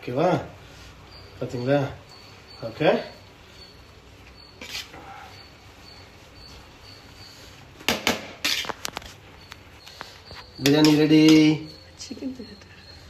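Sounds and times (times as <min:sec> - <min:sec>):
rice rustling: 0:00.4 - 0:11.6
metal spoon scraping metal pot: 0:04.5 - 0:05.1, 0:08.0 - 0:09.0, 0:10.2 - 0:11.9.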